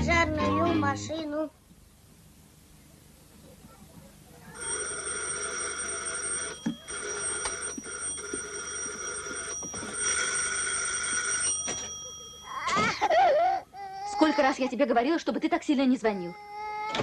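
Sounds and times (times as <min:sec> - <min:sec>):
electric doorbell ringing: 0:04.6 - 0:13.1.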